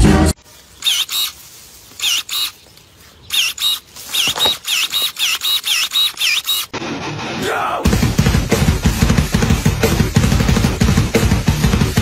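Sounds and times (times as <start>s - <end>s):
electric pruning shears whining: 0.7s - 2.7s, 3.3s - 6.8s.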